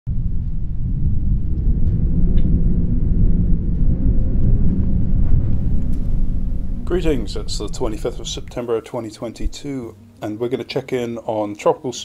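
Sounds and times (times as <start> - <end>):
deep storm-like rumble: 0.1 - 9.8.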